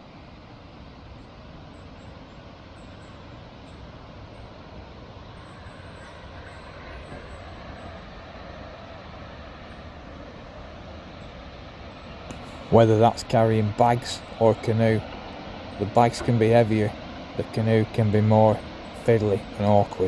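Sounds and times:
rushing water roar: 0.0s - 20.0s.

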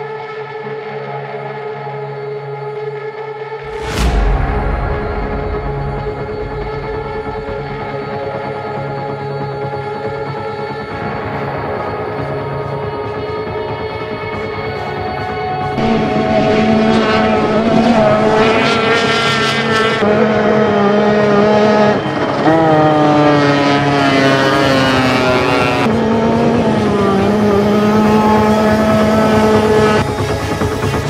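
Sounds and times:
powerboat engines at full speed: 12.7s - 31.0s.

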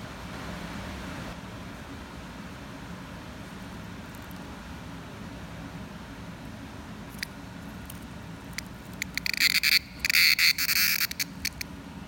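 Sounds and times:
cicada clicking and buzzing: 7.1s - 11.7s.

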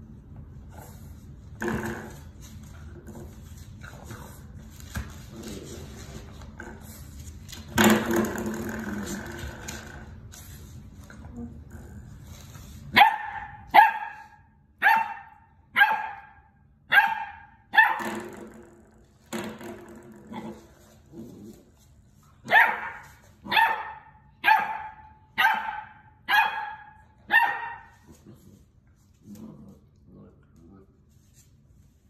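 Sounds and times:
puppy barking: 12.9s - 18.2s, 22.4s - 28.0s.

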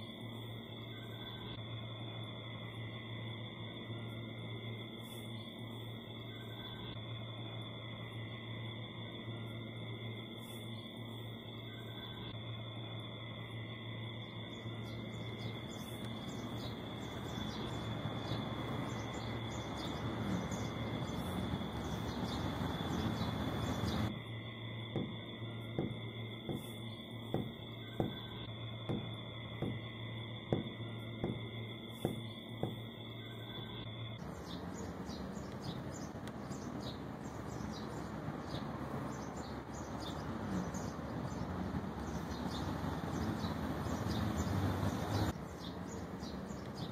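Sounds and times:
distant night noise: 0.0s - 46.9s
steady low hum: 0.0s - 46.9s
thin high whine: 0.0s - 46.9s.

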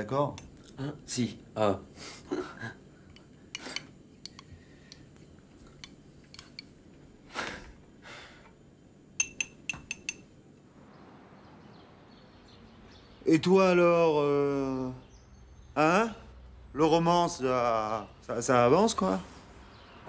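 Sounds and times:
crockery and cutlery clinking: 9.2s - 10.4s.

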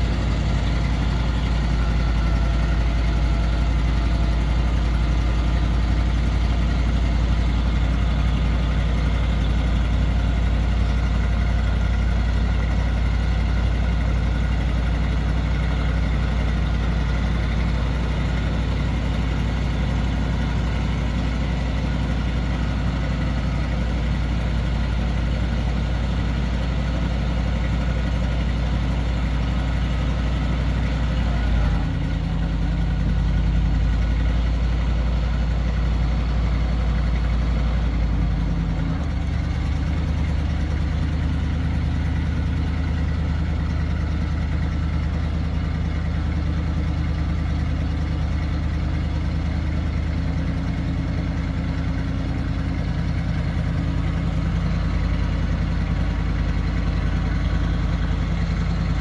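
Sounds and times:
truck engine idling: 0.0s - 59.0s.

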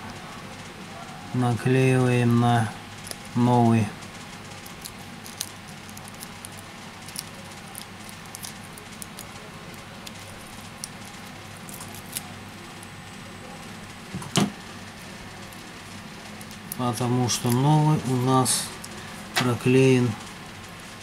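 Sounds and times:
steady low hum: 0.0s - 21.0s
tape peeling: 4.4s - 12.4s.

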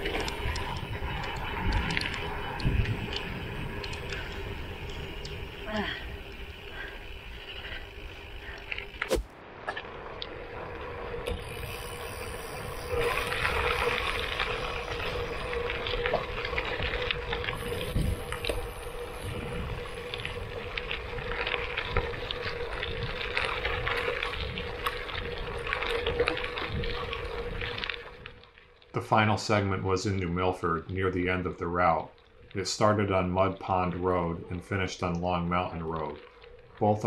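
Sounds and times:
wind noise on microphone: 0.0s - 6.7s, 11.2s - 28.4s
bike tyres crunching on gravel: 0.0s - 37.0s.

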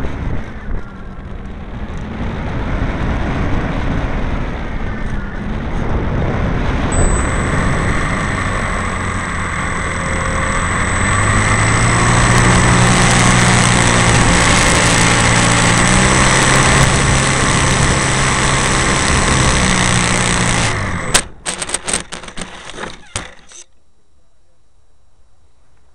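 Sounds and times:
model plane motor whining: 6.9s - 23.6s
model rolling over rough ground: 7.0s - 23.6s.

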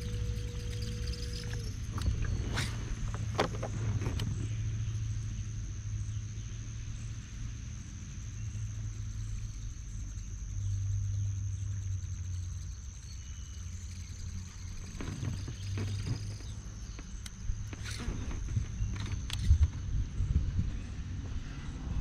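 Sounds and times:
electric trolling motor humming: 0.0s - 5.0s, 8.4s - 19.6s
faint high whine: 0.0s - 22.0s.

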